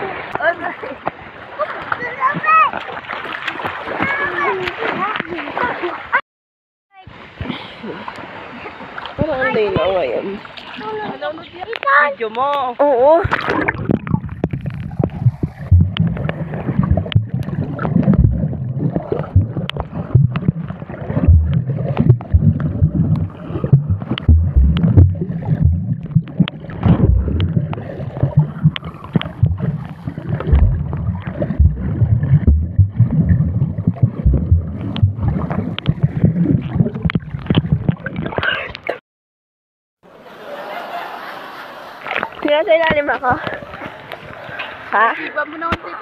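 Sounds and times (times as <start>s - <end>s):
water sloshing over microphone: 0.0s - 6.2s, 7.0s - 39.0s
low rumble: 13.8s - 37.5s
short knocks and thumps: 13.8s - 38.1s.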